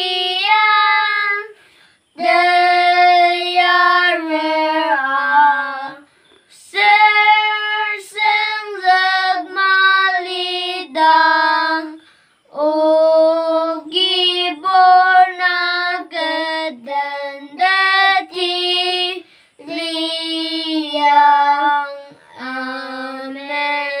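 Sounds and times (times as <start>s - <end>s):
boys singing a hymn: 0.0s - 24.0s.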